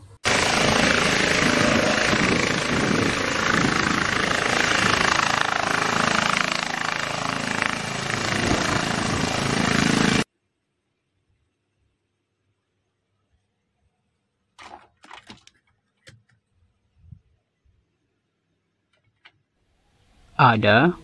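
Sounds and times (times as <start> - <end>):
helicopter hovering: 0.2 - 10.3.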